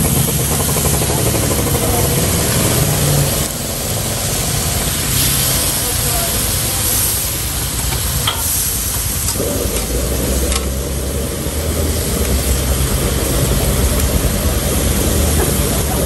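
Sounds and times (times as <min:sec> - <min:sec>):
burner rumbling: 0:00.0 - 0:16.0
food sizzling in a wok: 0:00.0 - 0:16.0
steel ladle clinking on wok: 0:07.9 - 0:08.7.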